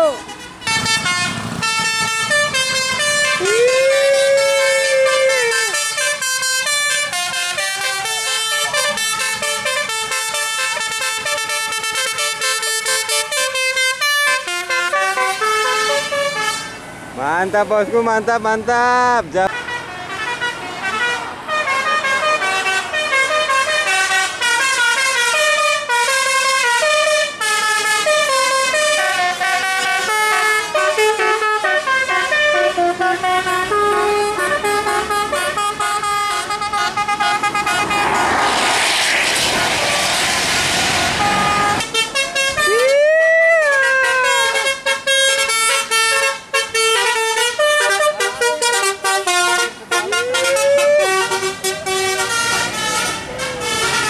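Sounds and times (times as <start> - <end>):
multi-tone bus horns playing tunes: 0.0 - 17.6, 19.3 - 54.0
loud rushing hiss: 37.2 - 41.8.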